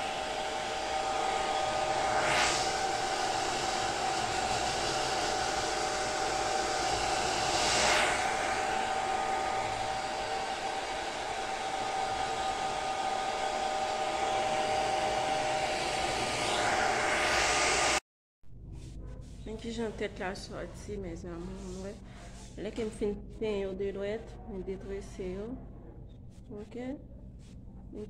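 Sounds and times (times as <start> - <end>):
hair dryer running: 0.0 - 18.0.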